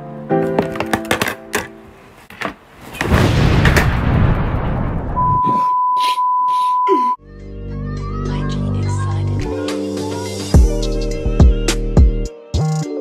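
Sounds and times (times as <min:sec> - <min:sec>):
explosion with deep rumble: 0:03.0 - 0:05.3.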